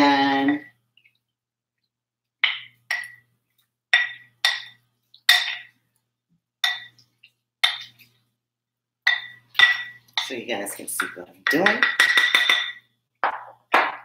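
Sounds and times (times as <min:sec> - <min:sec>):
wooden spoon clinking glass bowl: 0:03.9 - 0:05.7, 0:06.6 - 0:07.0, 0:09.0 - 0:10.4, 0:11.0 - 0:14.0.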